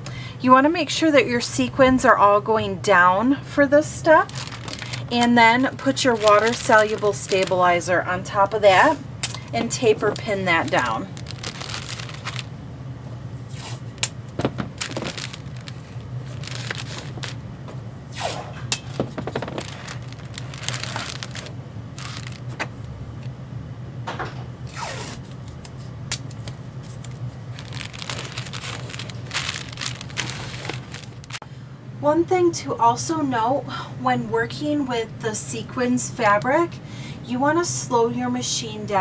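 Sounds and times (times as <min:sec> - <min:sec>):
steady low hum: 0:00.0 - 0:39.0
plastic film crinkling: 0:04.0 - 0:12.5, 0:13.9 - 0:17.4, 0:18.9 - 0:22.8, 0:26.3 - 0:31.4
tape ripping off roll: 0:04.3 - 0:07.6, 0:10.1 - 0:12.5, 0:13.5 - 0:17.4, 0:18.1 - 0:22.6, 0:26.9 - 0:31.4.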